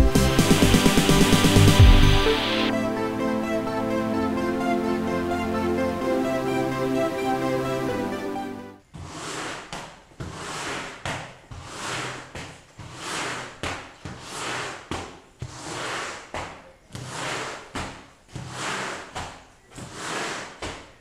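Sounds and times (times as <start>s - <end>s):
squeegee scraping wet floor: 8.9s - 21.0s.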